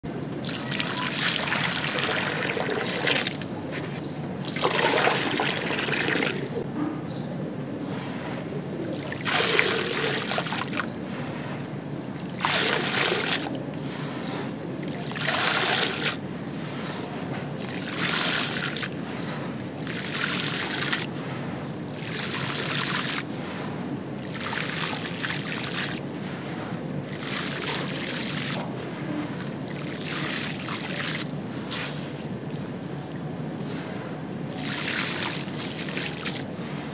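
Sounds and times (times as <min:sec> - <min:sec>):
sand pouring into water: 0:00.4 - 0:03.4, 0:04.5 - 0:06.6, 0:09.1 - 0:10.8, 0:12.3 - 0:13.5, 0:14.9 - 0:16.2, 0:17.6 - 0:18.9, 0:19.9 - 0:21.1, 0:34.5 - 0:36.5.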